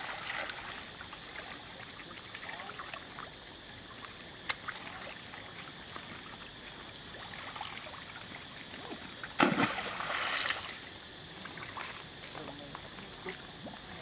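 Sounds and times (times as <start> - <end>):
water lapping and splashing: 0.0 - 14.0.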